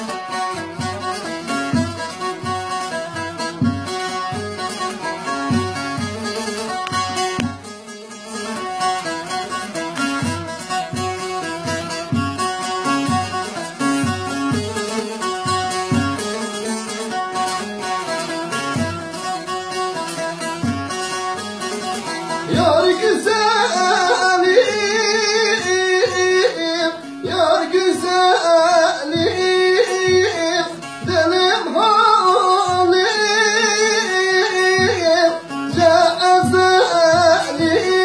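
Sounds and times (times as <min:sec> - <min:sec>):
plucked long-necked lute: 0:00.0 - 0:38.0
person singing: 0:22.0 - 0:38.0.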